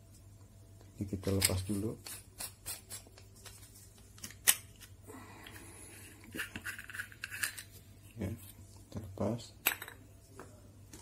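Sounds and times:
metal cap scraping rub: 6.3 - 7.7.

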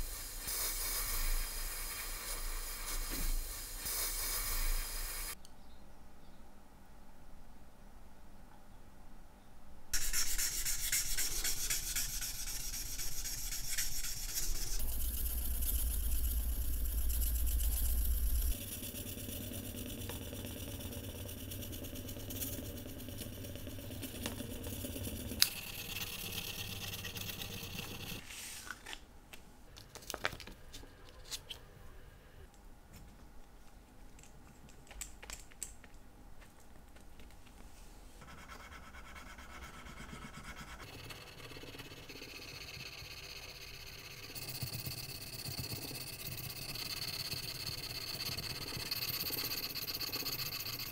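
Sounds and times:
sandpaper rubbing on metal: 10.0 - 28.6.

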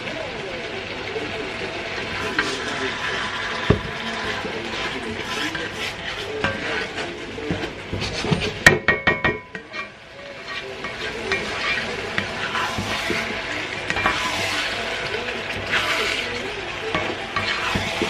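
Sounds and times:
sauce sizzling in a frying pan: 0.0 - 18.0
spatula knocking on pan: 7.5 - 9.9, 10.8 - 14.5, 16.9 - 18.0.

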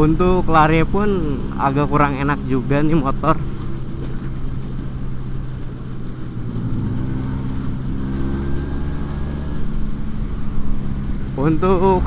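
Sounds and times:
man speaking: 0.0 - 3.5, 11.4 - 12.0.

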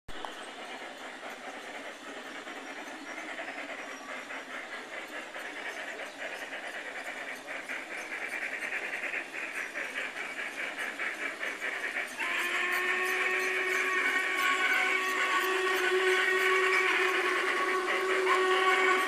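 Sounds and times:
model steam locomotive chuffing: 0.1 - 19.0
chime steam whistle: 12.1 - 19.0.

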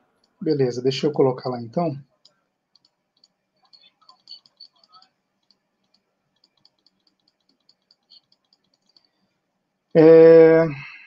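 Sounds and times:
computer mouse and keyboard clicking: 2.2 - 9.2.

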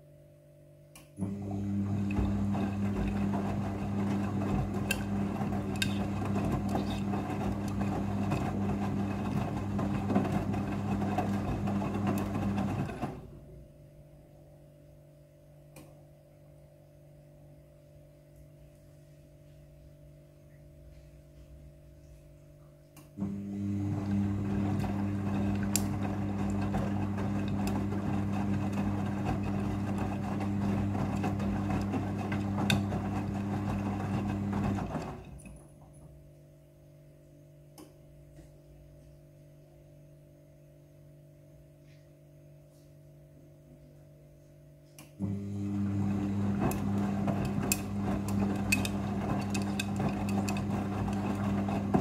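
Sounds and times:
washing machine motor hum: 1.2 - 14.6, 20.8 - 37.2, 44.0 - 52.0.

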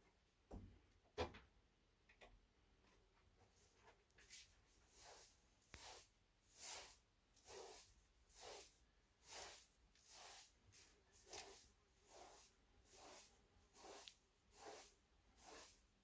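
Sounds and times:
broom sweeping carpet: 3.5 - 16.0.

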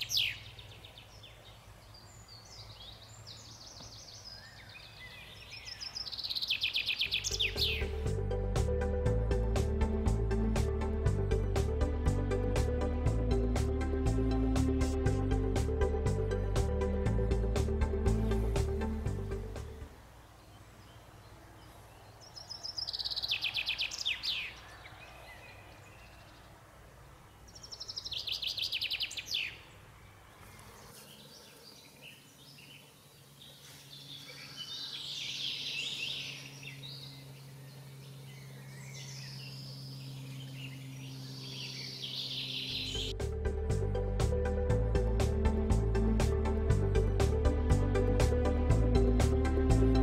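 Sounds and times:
songbirds singing: 0.0 - 9.7, 15.8 - 47.2.

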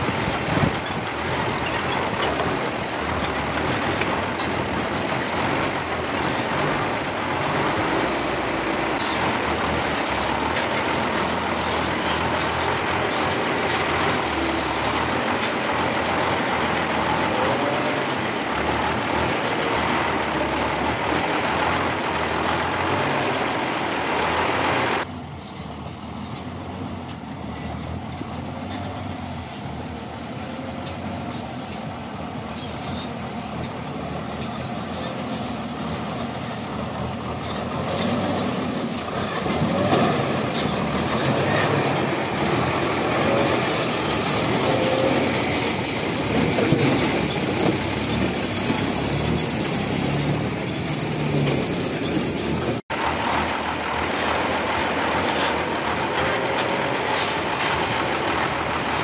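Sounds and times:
truck engine under load: 0.0 - 59.0
tyres grinding over stones: 37.3 - 59.0.

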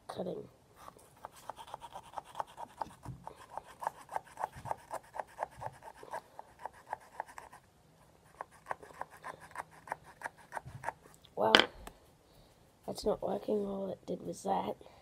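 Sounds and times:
cutting tool rasping pumpkin rind: 1.2 - 7.6.

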